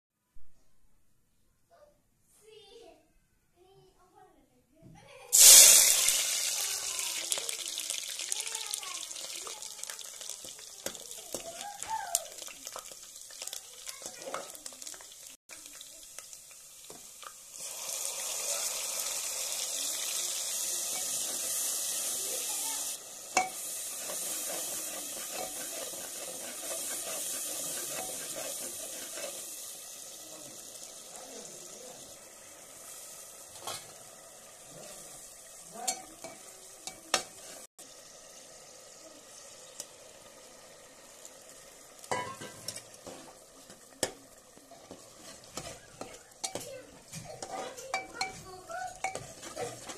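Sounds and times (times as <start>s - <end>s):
hot oil sizzling: 5.3s - 49.9s
metal spoon clinking against pot: 20.9s - 21.6s, 23.4s - 29.4s, 42.1s - 42.9s, 44.8s - 49.9s.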